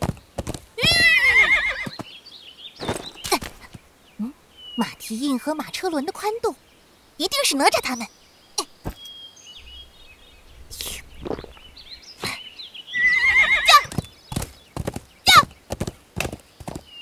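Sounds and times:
galloping hoofbeats: 0:00.0 - 0:02.0, 0:13.7 - 0:17.0
horse whinnying: 0:00.8 - 0:02.0, 0:13.0 - 0:14.0.

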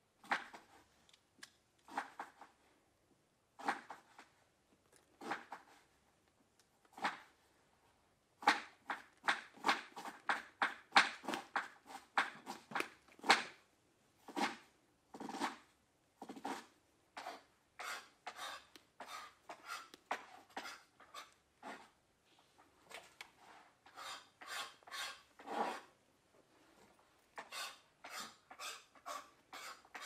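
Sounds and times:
dancer brushing and scraping floor: 0:14.2 - 0:22.0, 0:22.8 - 0:30.0.

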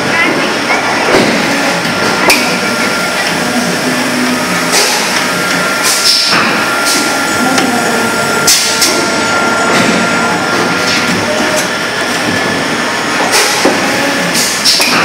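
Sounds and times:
machine mechanical noise: 0:00.0 - 0:15.0
faint steady whine: 0:01.7 - 0:13.0.

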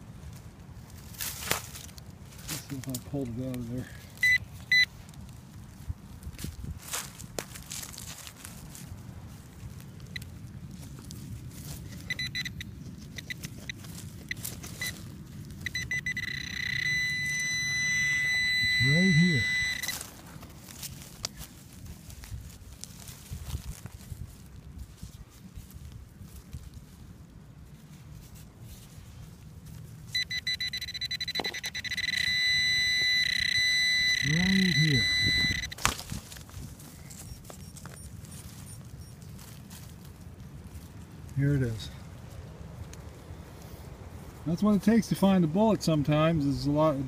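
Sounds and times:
soil scraping and rustling: 0:00.0 - 0:47.0
metal detector high beeps: 0:04.2 - 0:04.9, 0:11.9 - 0:20.1, 0:30.1 - 0:36.0, 0:37.0 - 0:39.2.

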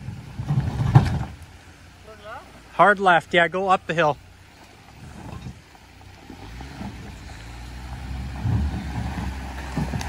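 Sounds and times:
truck engine pulling under throttle: 0:04.2 - 0:10.0
dull low thumps: 0:04.8 - 0:10.0.

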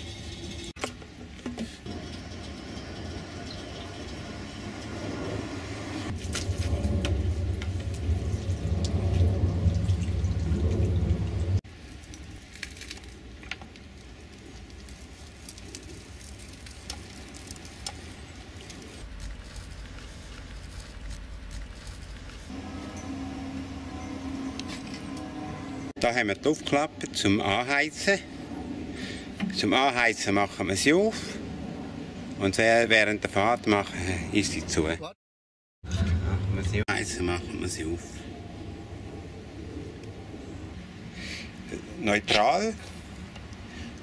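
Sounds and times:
hose water running into tank: 0:00.0 - 0:00.8, 0:01.5 - 0:19.0.

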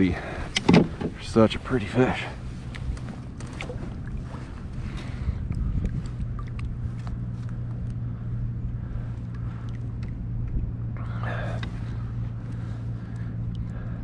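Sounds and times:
low hum: 0:00.0 - 0:14.0
water splashing and dripping: 0:02.7 - 0:07.6.

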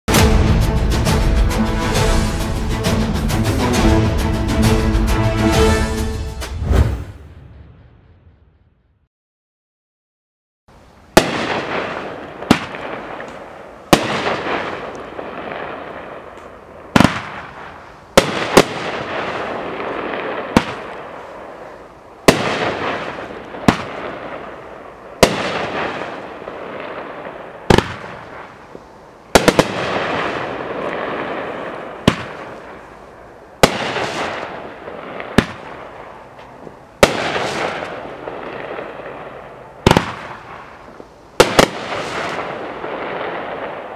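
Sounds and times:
crackling hiss: 0:10.7 - 0:43.9
fireworks reports: 0:11.1 - 0:43.9.

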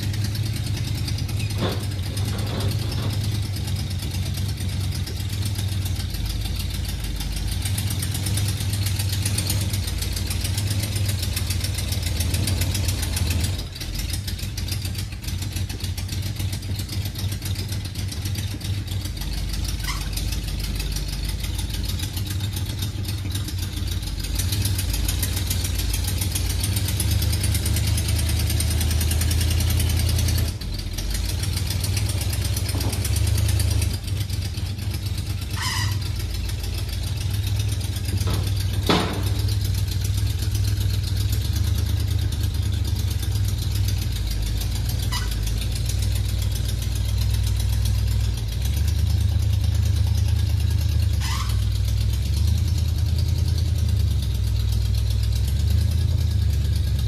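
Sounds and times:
truck engine running: 0:00.0 - 0:57.0.

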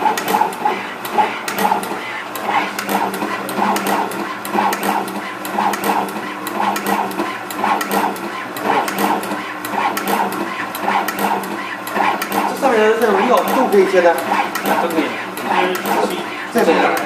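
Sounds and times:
machine clatter: 0:00.0 - 0:17.0
machine motor hum: 0:00.0 - 0:17.0
sharp clicks: 0:02.8 - 0:12.6, 0:13.4 - 0:15.0.

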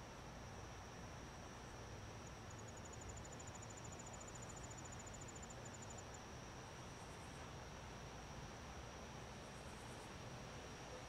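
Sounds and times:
crickets chirping: 0:01.6 - 0:06.2.

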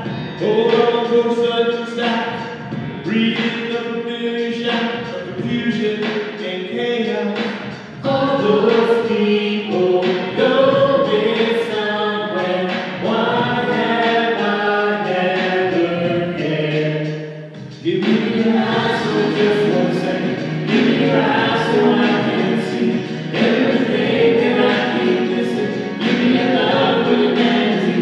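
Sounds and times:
group singing in harmony: 0:08.0 - 0:28.0.

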